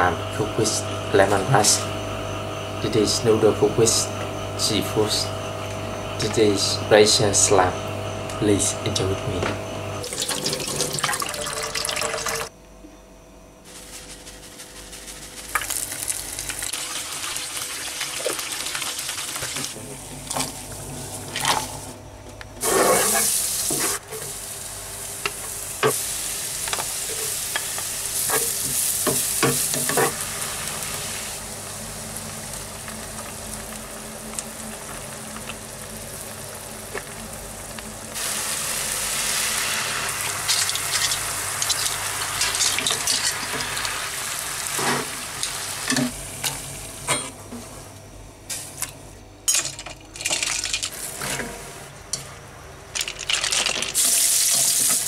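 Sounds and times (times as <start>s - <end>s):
garlic sizzling in butter: 13.7s - 19.8s, 22.6s - 46.9s, 53.2s - 55.0s.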